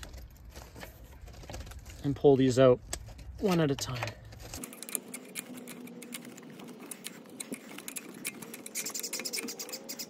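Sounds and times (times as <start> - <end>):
pliers clicking and scraping metal: 2.9 - 10.0.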